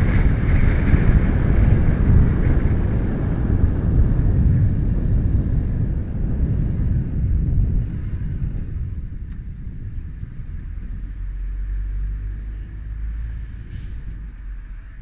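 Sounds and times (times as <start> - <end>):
wind rumble on microphone: 0.0 - 15.0
brief hiss: 13.7 - 14.2.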